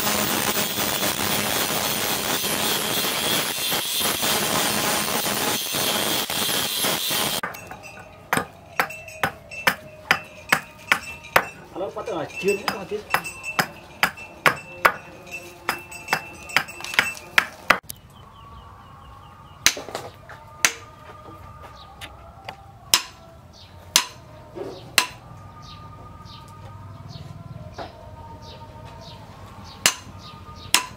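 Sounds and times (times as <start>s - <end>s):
angle grinder grinding steel: 0.0s - 17.8s
chopping strikes on wood: 22.9s - 23.2s, 29.8s - 30.1s.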